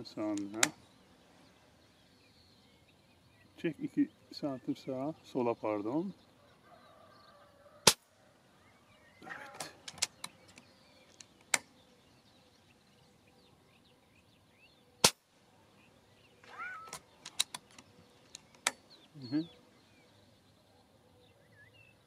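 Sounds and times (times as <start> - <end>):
quiet clicks: 0.3 - 0.8, 9.4 - 11.7, 16.8 - 18.9
air rifle shots: 7.8 - 8.1, 15.0 - 15.3.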